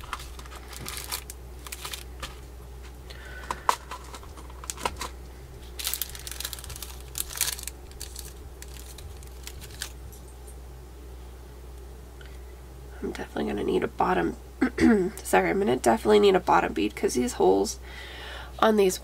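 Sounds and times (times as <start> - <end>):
plastic bag crinkling: 0.0 - 2.5, 3.4 - 10.2.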